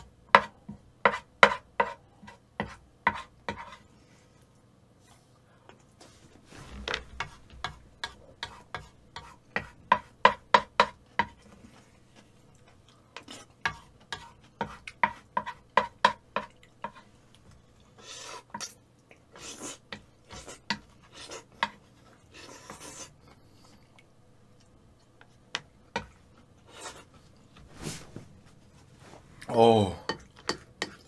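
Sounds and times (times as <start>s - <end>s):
noisy scrapes against bowl: 19.4s - 23.2s.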